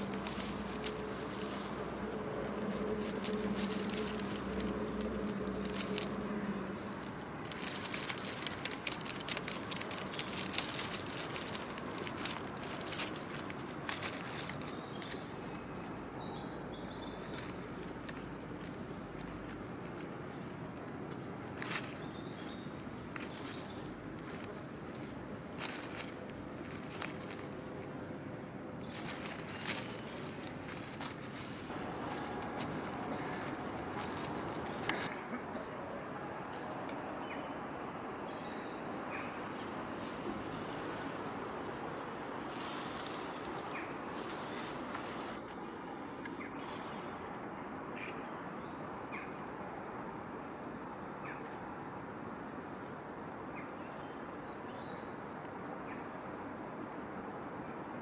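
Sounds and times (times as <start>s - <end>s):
hedgehog rustling and clicking: 0.0s - 35.2s.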